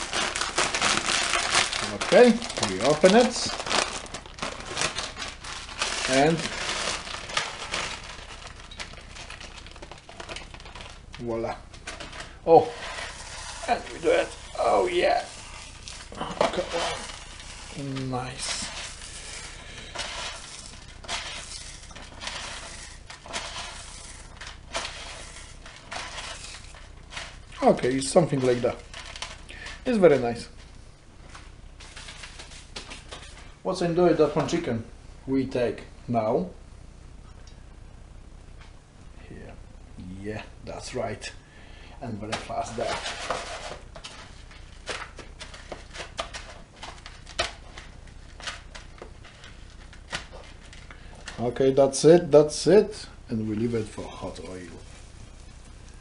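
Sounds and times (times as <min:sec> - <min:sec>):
crumbs crackling against plastic tub: 0:00.0 - 0:30.6.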